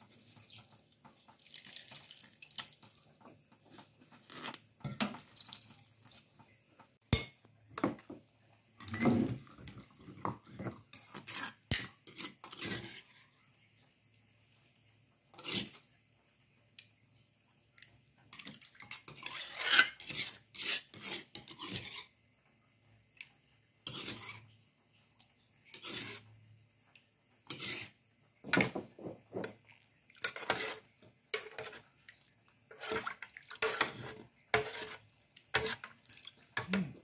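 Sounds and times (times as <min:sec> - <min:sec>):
metal ladle scraping pot: 0:18.4 - 0:22.1, 0:23.8 - 0:24.4, 0:25.7 - 0:26.2, 0:27.5 - 0:29.6, 0:30.2 - 0:31.8, 0:32.7 - 0:36.0
liquid sloshing in pot: 0:28.5 - 0:37.0.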